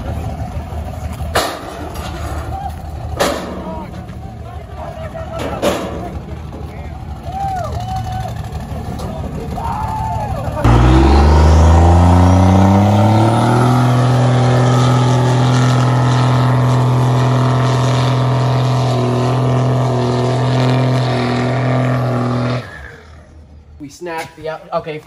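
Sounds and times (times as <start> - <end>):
diesel engine revving: 6.2 - 23.6.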